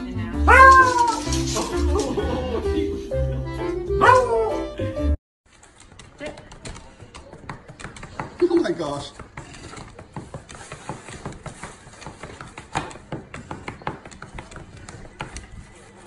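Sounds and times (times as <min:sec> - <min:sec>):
packaging crackling in hands: 0:00.6 - 0:02.1.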